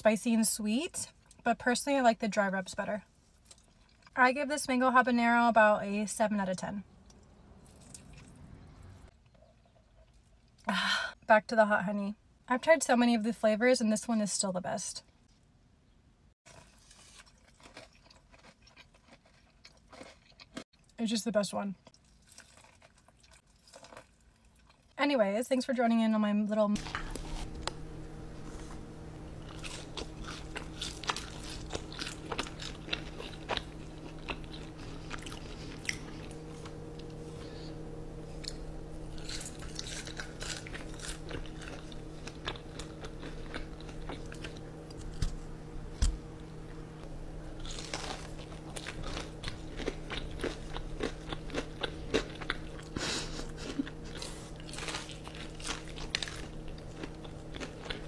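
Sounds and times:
low steady hum: 0:00.0 - 0:16.3, 0:20.4 - 0:58.0
crunching and chewing: 0:03.2 - 0:04.2, 0:07.0 - 0:10.7, 0:16.4 - 0:21.0, 0:21.7 - 0:25.0, 0:26.8 - 0:58.0.

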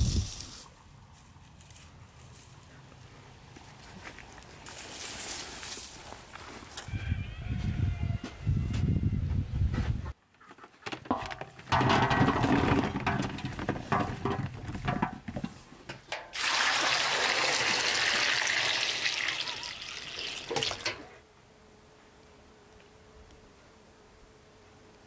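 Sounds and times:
clattering and knocks: 0:10.8 - 0:16.3
water splashing into metal basin: 0:16.1 - 0:21.1.

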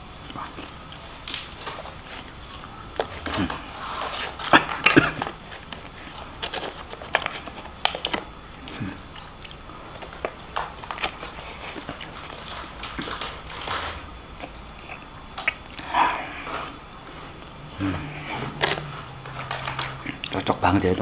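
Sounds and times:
person chewing food: 0:00.0 - 0:20.6
short clicks and crunches: 0:03.0 - 0:15.6, 0:18.3 - 0:20.6.

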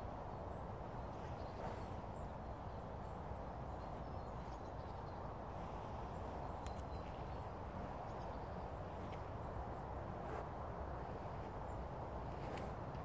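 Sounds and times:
faint bird chirps: 0:00.3 - 0:10.0.

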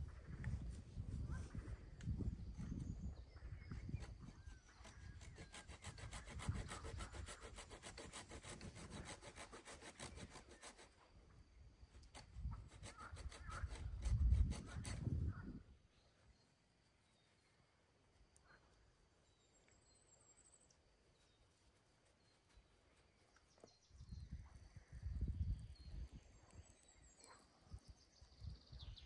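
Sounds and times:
hand saw cutting wood: 0:04.7 - 0:11.0, 0:12.0 - 0:15.2.

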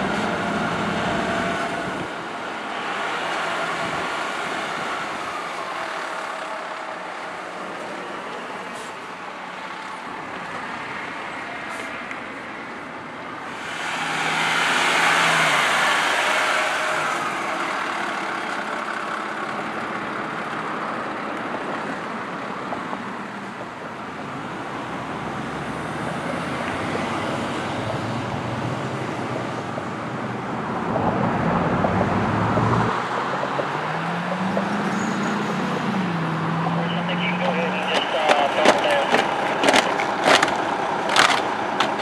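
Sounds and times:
fire truck passing loudly: 0:00.0 - 0:12.4, 0:13.4 - 0:22.2, 0:23.4 - 0:42.0
steady traffic noise: 0:00.0 - 0:42.0
engine note rising and falling: 0:13.5 - 0:17.5, 0:31.0 - 0:39.6.

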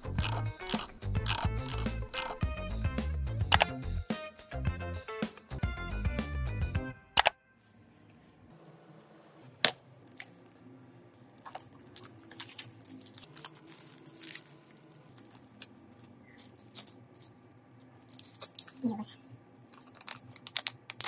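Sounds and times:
small parts and tools handled: 0:00.0 - 0:02.4, 0:11.3 - 0:21.0
background music: 0:00.0 - 0:07.6.

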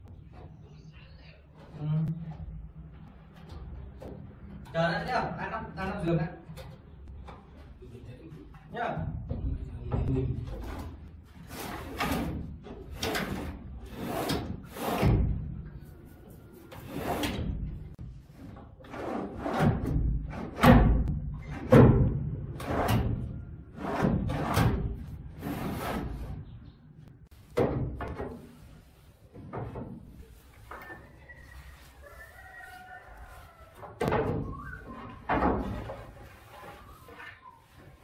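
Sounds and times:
drawers sliding on metal slides: 0:10.6 - 0:15.4, 0:16.6 - 0:17.8
wooden knocks and thuds: 0:19.4 - 0:23.3, 0:27.5 - 0:28.6, 0:29.3 - 0:30.2, 0:33.8 - 0:36.2.

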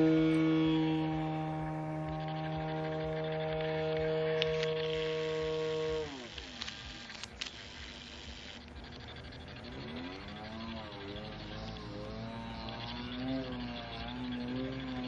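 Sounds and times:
model airplane motor droning: 0:00.0 - 0:15.0.

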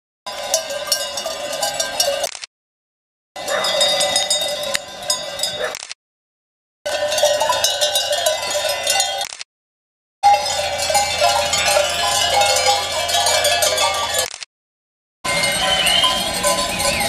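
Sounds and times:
sheep bells clanging: 0:00.3 - 0:02.3, 0:03.4 - 0:05.7, 0:06.9 - 0:09.3, 0:10.2 - 0:14.3, 0:15.3 - 0:17.0.

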